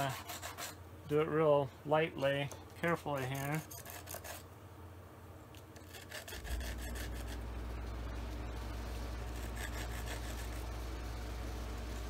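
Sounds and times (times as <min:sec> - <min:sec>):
metal rubbed on sandpaper: 0:00.0 - 0:00.8, 0:03.0 - 0:04.5, 0:05.8 - 0:07.5, 0:09.2 - 0:10.8
low machine hum: 0:00.0 - 0:12.0.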